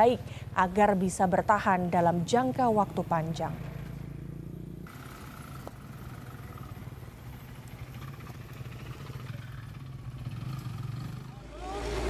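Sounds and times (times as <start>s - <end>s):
vehicle engine droning: 2.9s - 12.0s.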